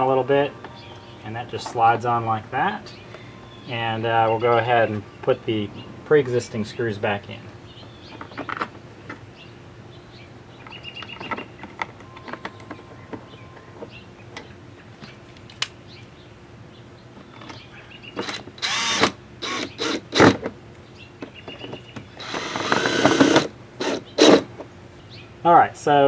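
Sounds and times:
cordless drill driving screws: 18.2 - 20.4, 22.2 - 24.5.

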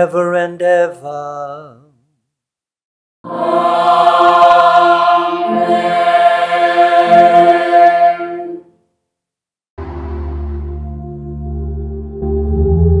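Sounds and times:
unaccompanied choir singing: 3.2 - 8.7
low ambient drone: 9.8 - 13.0.

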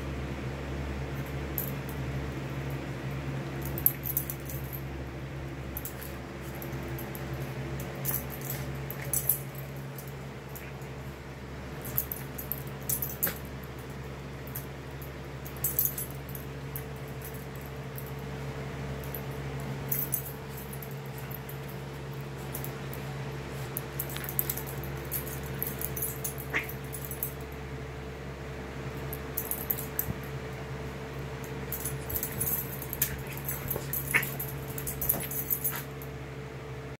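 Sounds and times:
steady low hum: 0.0 - 36.9
animals scuffling and rustling: 19.1 - 27.3, 31.3 - 36.0.

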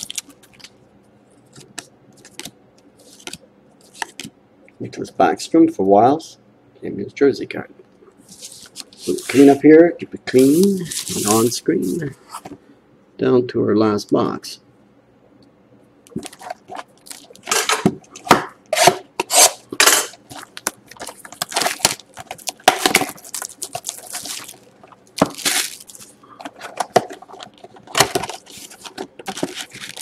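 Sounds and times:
plastic wrap crinkling: 0.0 - 0.8, 10.3 - 12.1, 16.1 - 17.6, 20.2 - 30.0.

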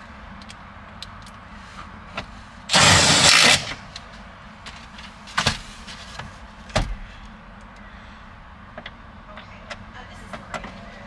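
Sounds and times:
loud rushing burst: 2.7 - 3.9.

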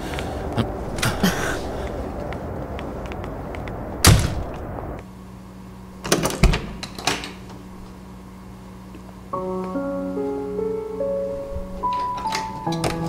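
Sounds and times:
soft piano music: 9.3 - 13.0.

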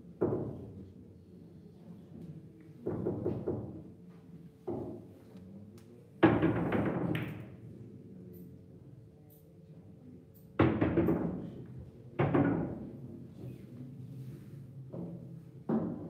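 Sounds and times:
billiard balls knocking: 15.0 - 16.0.

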